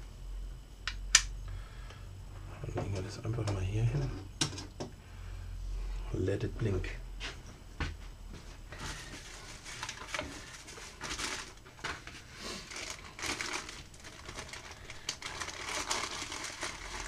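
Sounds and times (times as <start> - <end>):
plastic and paper crinkling: 8.8 - 17.0.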